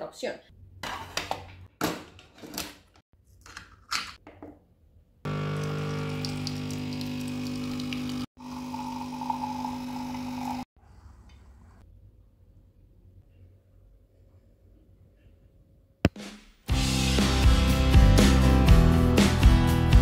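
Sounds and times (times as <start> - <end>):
coffee pouring into mug: 5.3 - 10.6
coffee machine pump buzzing hum: 5.3 - 10.7.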